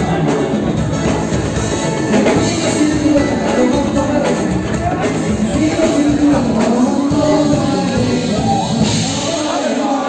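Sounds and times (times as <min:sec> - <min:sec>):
loud dance music with singing: 0:02.3 - 0:10.0.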